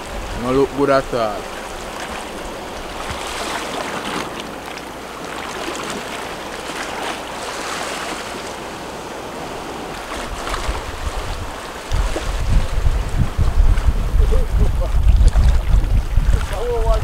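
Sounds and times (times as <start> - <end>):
sea water splashing on rocks: 1.1 - 17.0
wind on microphone: 7.0 - 17.0.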